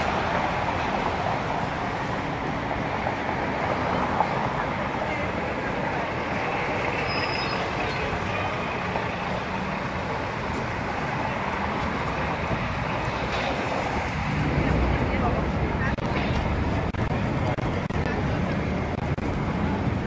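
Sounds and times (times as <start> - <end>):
outdoor urban din: 0.0 - 20.0
road traffic hum: 0.0 - 20.0
brief high squeak: 7.0 - 8.0.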